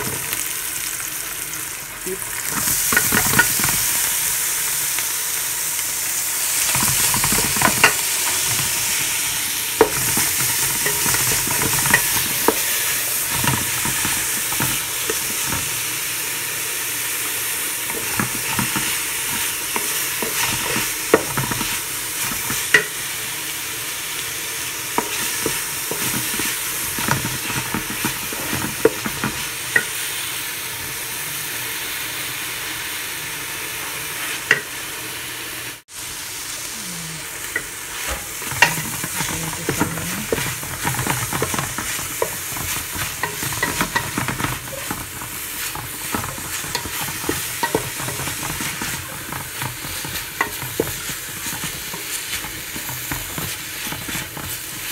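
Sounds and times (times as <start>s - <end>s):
food sizzling in hot oil: 0.0s - 54.9s
wooden spatula scraping a pot: 6.6s - 15.8s, 17.4s - 23.1s, 25.0s - 29.9s, 37.4s - 54.9s.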